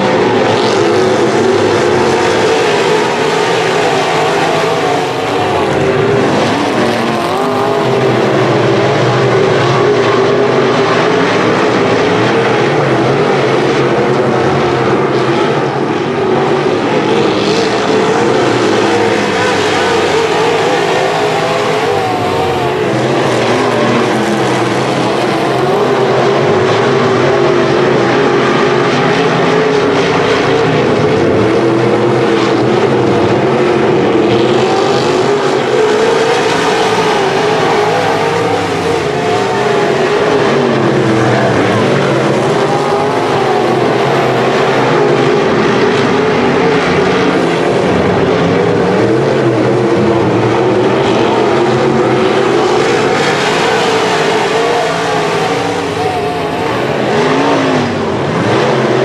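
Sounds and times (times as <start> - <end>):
race car engines roaring: 0.0 - 59.0.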